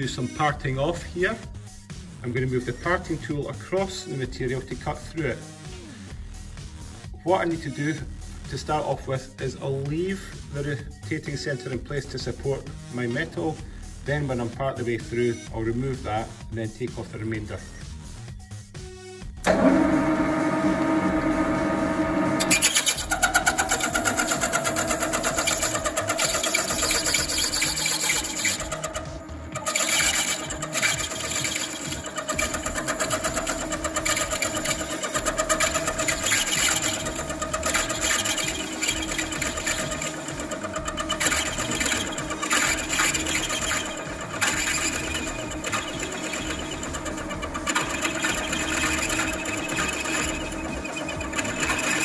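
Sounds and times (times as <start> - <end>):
lathe cutting brass rattle: 19.5 - 52.0.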